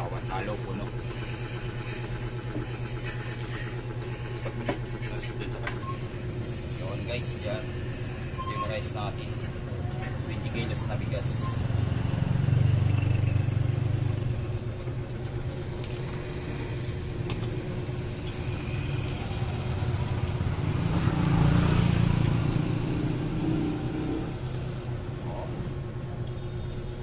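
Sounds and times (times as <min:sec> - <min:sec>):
vehicles passing: 0:09.0 - 0:26.2.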